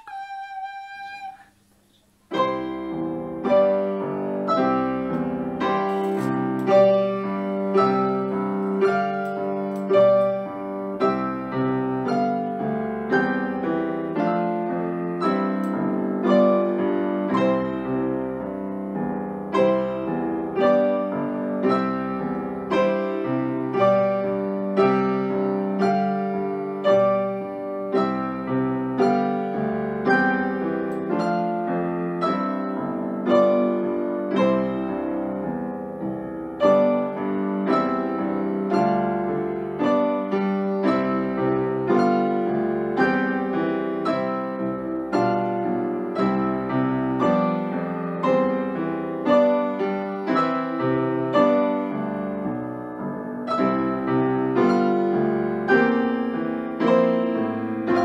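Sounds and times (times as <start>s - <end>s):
grand piano playing: 2.3s - 58.0s.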